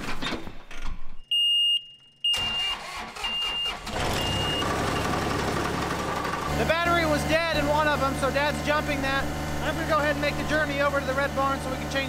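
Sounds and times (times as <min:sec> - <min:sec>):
high warning beeper: 0:01.3 - 0:05.1
diesel engine starting and running: 0:02.3 - 0:12.0.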